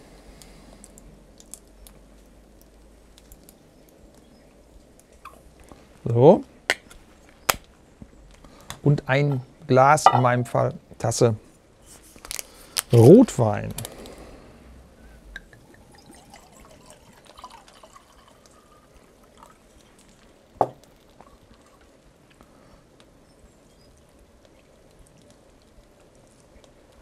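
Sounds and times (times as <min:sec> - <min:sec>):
wine trickling into pot: 0:15.2 - 0:22.1.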